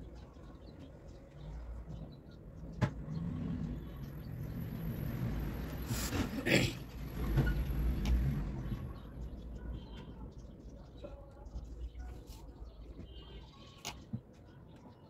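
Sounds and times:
motor vehicle passing: 2.7 - 9.7.

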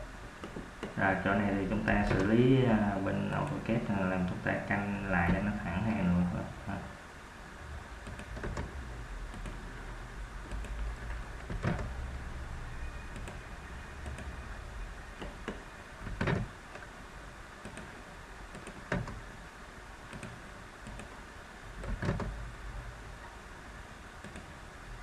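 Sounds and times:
steady low hum and hiss: 0.0 - 25.0
mouse and keyboard clicks: 9.3 - 9.6, 14.0 - 14.3, 20.1 - 21.2.

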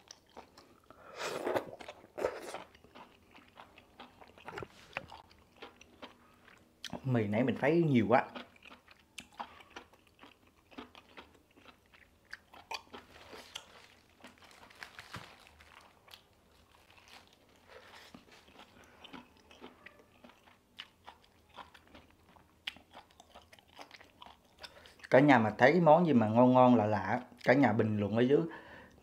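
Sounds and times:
person chewing food: 0.0 - 7.1, 8.2 - 25.2.

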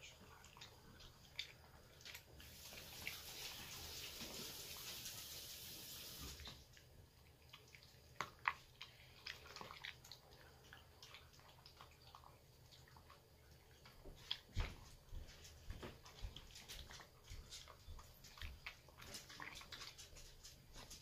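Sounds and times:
dog chewing and licking food: 0.0 - 21.0
steady hiss: 2.4 - 6.6.

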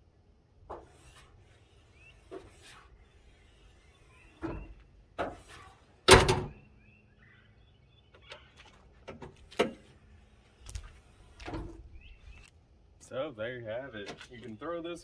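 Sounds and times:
car hood slamming shut: 6.1 - 6.6
hood latch clunks: 6.1 - 6.6.

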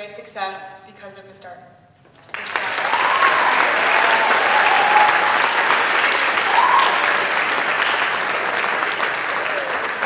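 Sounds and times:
crowd applauding: 2.2 - 10.0.

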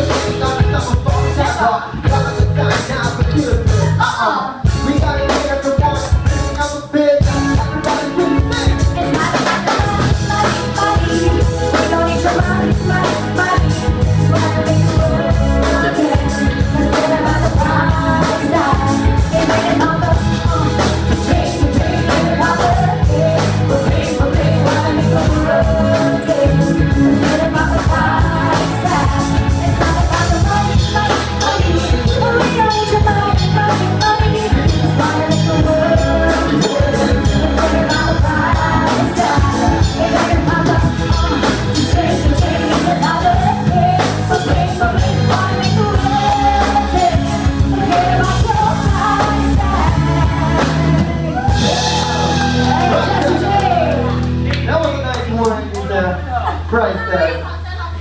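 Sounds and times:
drum kit: 0.0 - 55.8
electric guitars: 0.0 - 57.4
keyboard: 0.0 - 58.0
woman singing into a microphone: 7.6 - 53.9.

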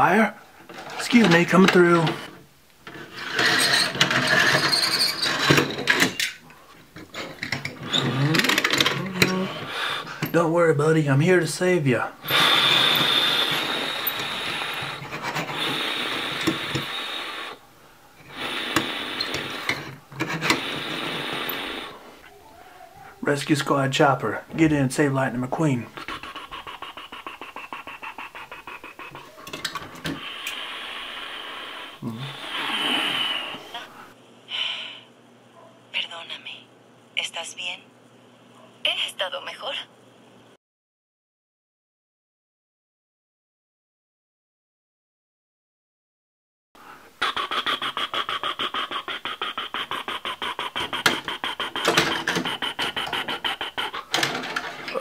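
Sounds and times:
long rushing hiss: 12.2 - 19.7, 20.5 - 22.2, 30.1 - 33.7.

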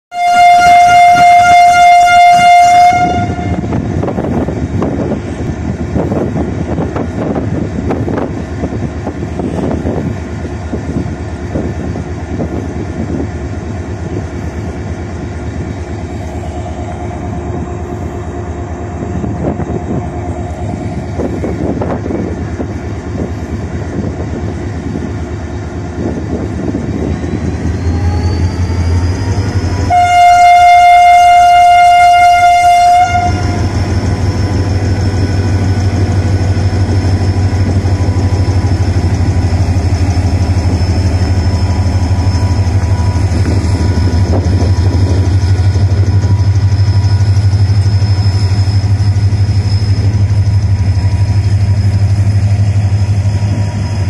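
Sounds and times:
locomotive horn blast: 0.1 - 3.8, 29.7 - 33.8
diesel engine rumbling: 0.4 - 54.0
engine whine rising: 27.1 - 30.7.

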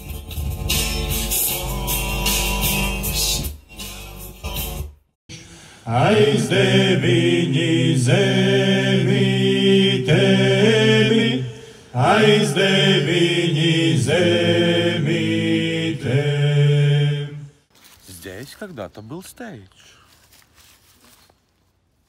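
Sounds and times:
male ensemble chanting: 5.8 - 17.6.

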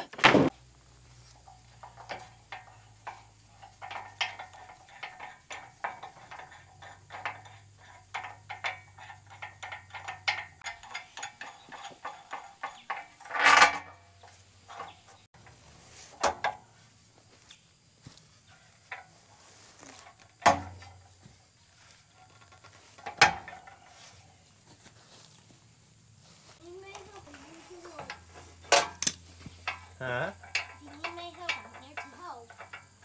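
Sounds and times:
steel parts clinking: 1.2 - 16.6, 22.0 - 24.4, 26.9 - 33.0.

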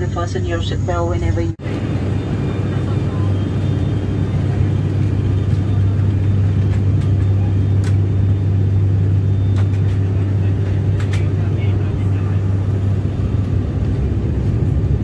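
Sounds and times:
turboprop engine drone in cabin: 0.0 - 15.0.

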